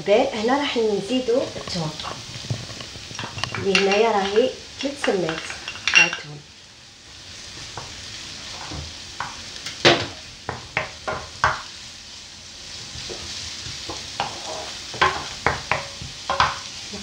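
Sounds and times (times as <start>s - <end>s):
onion sizzling in oil: 0.0s - 17.0s
spoon knocking against pan: 9.2s - 11.7s, 13.9s - 16.6s
wooden spoon scraping pan: 12.9s - 16.6s.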